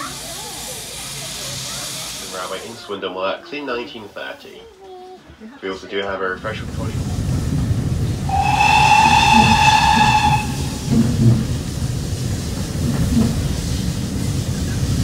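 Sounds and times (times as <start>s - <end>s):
train carriage rumbling on track: 6.1s - 15.0s
steam locomotive whistle: 8.3s - 11.6s.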